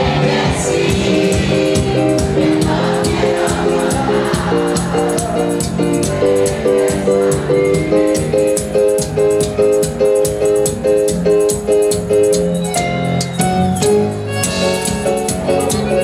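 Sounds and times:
bass line: 0:00.0 - 0:16.0
keyboard chords: 0:00.0 - 0:16.0
hand percussion ticking: 0:03.0 - 0:16.0.

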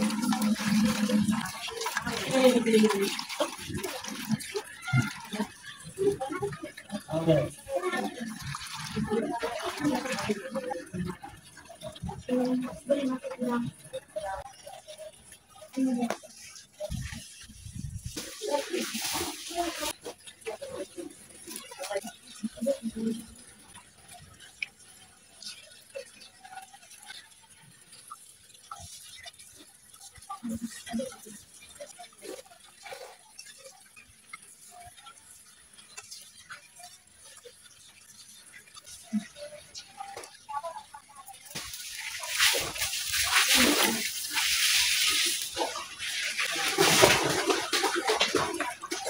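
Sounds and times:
hand mixing food in metal wok: 0:00.0 - 0:07.2, 0:41.4 - 0:49.0
water splashing into a wok: 0:00.0 - 0:49.0.

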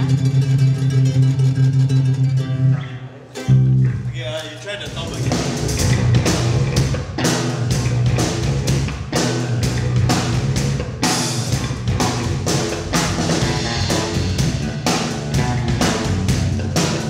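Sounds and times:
electric bass guitar: 0:00.0 - 0:04.2, 0:04.8 - 0:17.0
drums and cymbals: 0:04.8 - 0:17.0.

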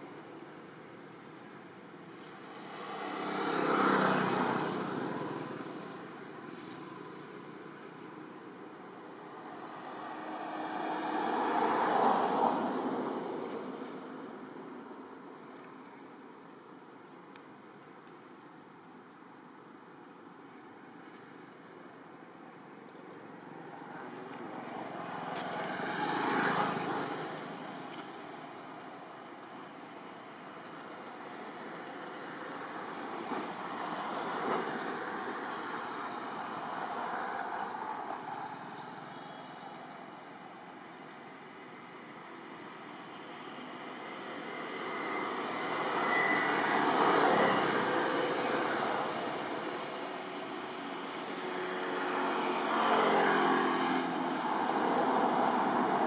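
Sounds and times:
vehicle passing by: 0:02.5 - 0:07.5, 0:09.4 - 0:13.9, 0:24.0 - 0:28.0, 0:44.5 - 0:56.0.

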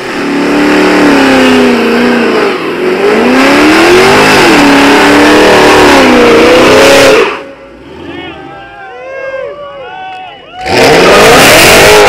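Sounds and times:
car engine revving hard: 0:00.0 - 0:08.1, 0:10.6 - 0:12.0.

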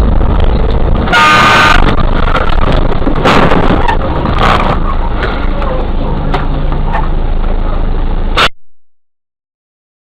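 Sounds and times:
vehicle rumbling on snowy road: 0:00.0 - 0:08.5
vehicle horn: 0:01.0 - 0:02.0.

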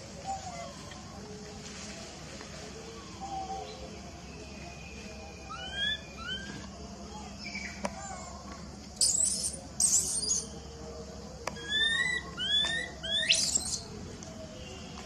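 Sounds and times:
baby macaques squeaking: 0:05.5 - 0:06.5, 0:09.0 - 0:10.5, 0:11.6 - 0:13.8.

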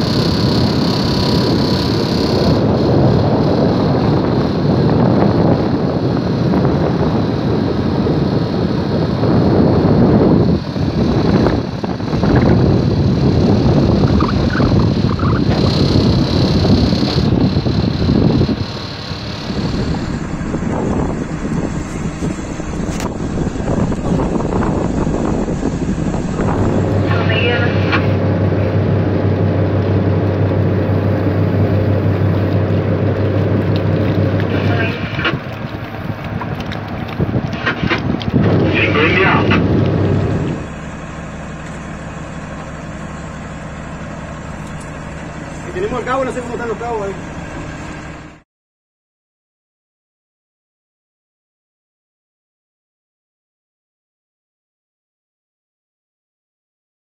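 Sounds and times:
boat engine running: 0:00.0 - 0:48.4
wind noise on microphone: 0:00.0 - 0:48.4
water washing: 0:10.5 - 0:48.3.

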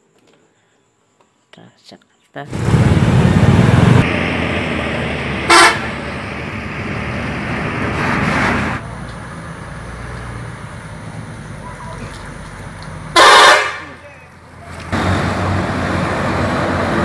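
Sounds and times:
buses driving past: 0:02.5 - 0:17.0
bus horn toot: 0:05.4 - 0:06.0, 0:13.1 - 0:14.0.

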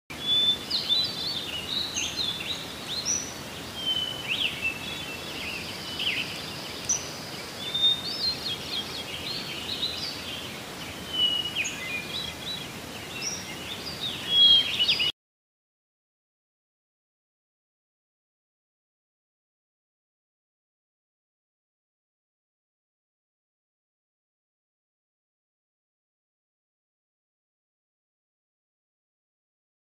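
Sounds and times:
birds chirping and singing: 0:00.1 - 0:15.1
faint background hiss: 0:00.1 - 0:15.1.

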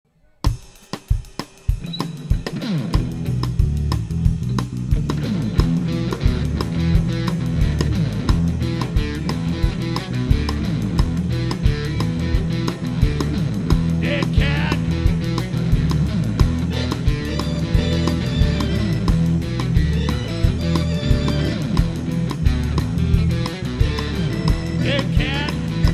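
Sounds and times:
drum kit beat: 0:00.4 - 0:25.9
live rock band playing: 0:00.4 - 0:25.9
person singing: 0:14.0 - 0:15.0, 0:24.8 - 0:25.9.

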